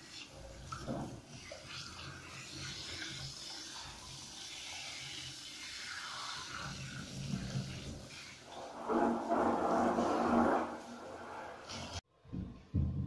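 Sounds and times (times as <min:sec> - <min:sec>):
shower water spraying: 0:00.0 - 0:12.0.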